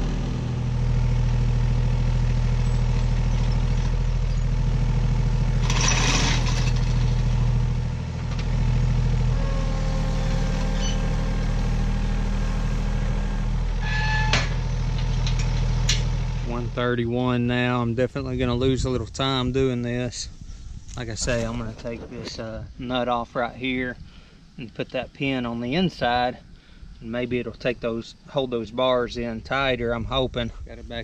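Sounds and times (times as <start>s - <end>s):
diesel tractor idling: 0.0s - 17.4s.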